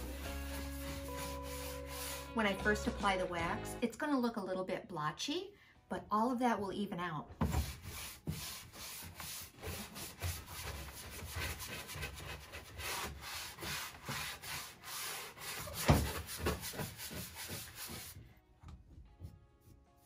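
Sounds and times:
brush scrubbing wood: 0:00.0 - 0:02.4, 0:07.6 - 0:18.2.

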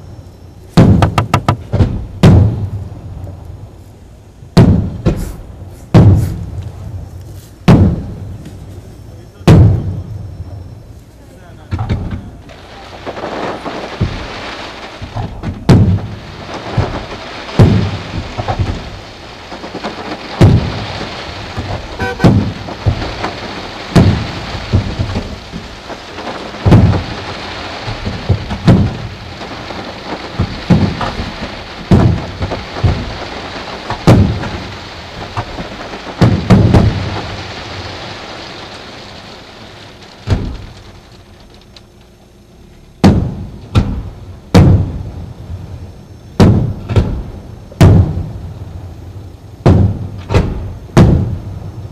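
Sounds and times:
crackling hiss of fireworks: 0:00.0 - 0:51.9
firework shells bursting: 0:00.6 - 0:03.4, 0:11.8 - 0:45.1, 0:49.1 - 0:51.9.

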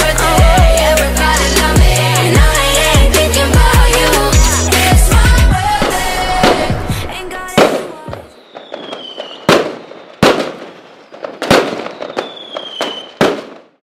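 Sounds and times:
fireworks bangs: 0:05.0 - 0:13.8
falling firework whistle: 0:07.5 - 0:13.6
small fireworks pops: 0:07.5 - 0:13.8.

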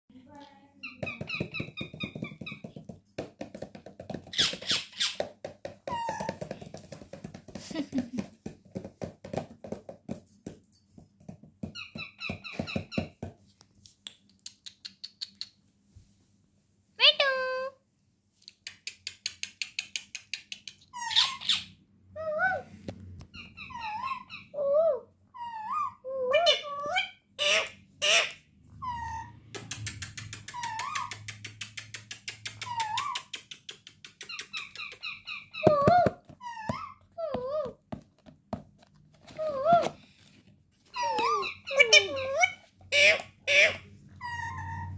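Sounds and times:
parakeet rapid clicks: 0:18.5 - 0:20.9, 0:29.6 - 0:35.2
parakeet squawk: 0:20.9 - 0:21.8, 0:23.3 - 0:24.8, 0:25.4 - 0:29.4, 0:41.0 - 0:44.9
parakeets chattering: 0:41.0 - 0:44.9.

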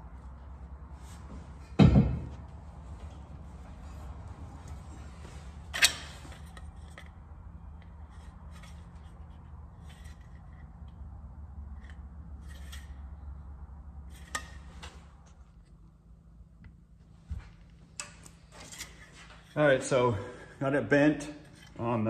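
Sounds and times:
steady low hum: 0:00.0 - 0:22.0
snips cutting sheet metal: 0:14.2 - 0:14.6.

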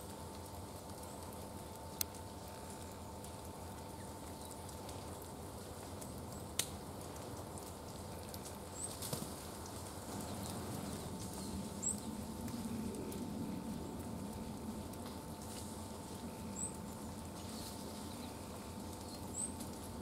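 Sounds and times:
bird pecking and scrabbling seeds: 0:00.5 - 0:20.0.

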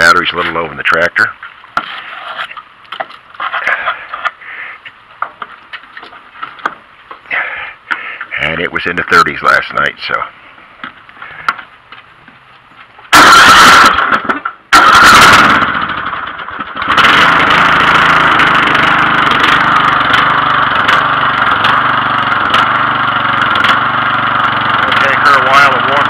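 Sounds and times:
lawn tractor engine starting and running: 0:13.0 - 0:26.0.

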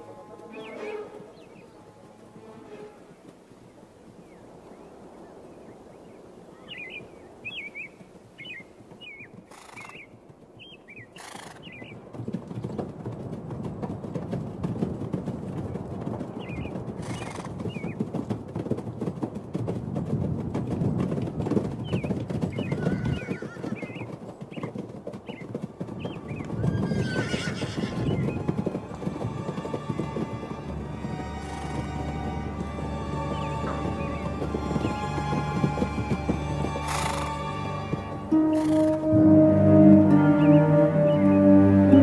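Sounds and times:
music: 0:00.0 - 0:03.1, 0:28.2 - 0:42.0
birds chirping: 0:00.0 - 0:12.8, 0:15.6 - 0:18.1, 0:21.8 - 0:42.0
horse hooves clopping: 0:00.0 - 0:42.0
horse whinnying: 0:22.7 - 0:24.0, 0:26.4 - 0:28.5, 0:31.4 - 0:32.1, 0:35.9 - 0:39.1.

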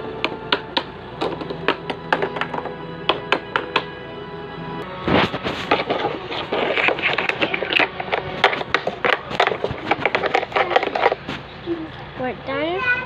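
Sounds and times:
hand scraping plastic toy car: 0:05.1 - 0:11.4.

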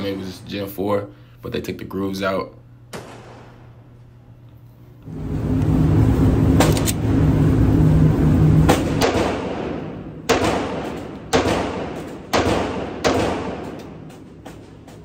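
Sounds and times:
steady low hum: 0:00.0 - 0:15.0
pistol shots with echo: 0:02.9 - 0:03.8, 0:08.8 - 0:14.7.

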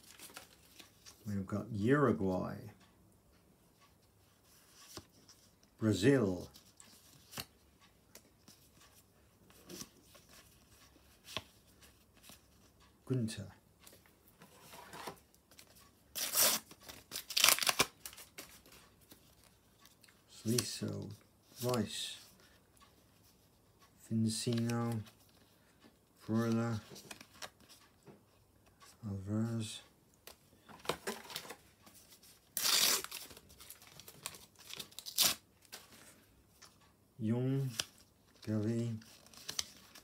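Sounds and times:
wrapper being torn open: 0:16.2 - 0:17.9.

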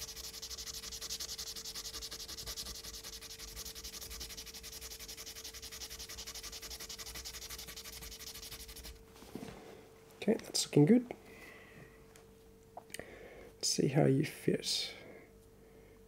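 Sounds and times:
plastic part sanded on sandpaper: 0:00.0 - 0:09.0.

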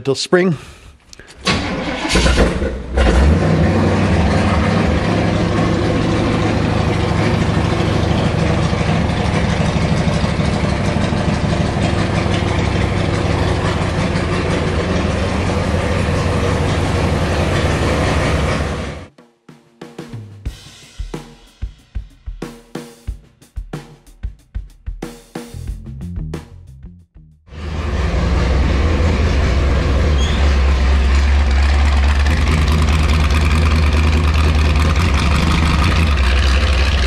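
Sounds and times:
engine starting and idling: 0:01.3 - 0:19.1, 0:27.5 - 0:37.0.

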